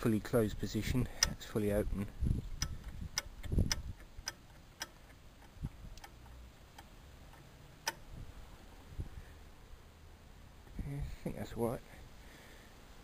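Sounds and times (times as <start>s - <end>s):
light metallic clicks and taps: 1.0s - 1.5s, 2.6s - 8.0s.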